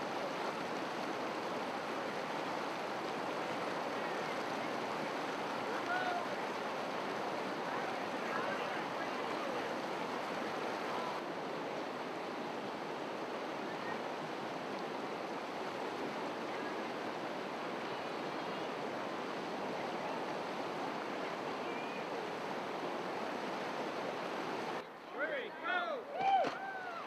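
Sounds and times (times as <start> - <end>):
river rapids rushing: 0.0 - 24.8.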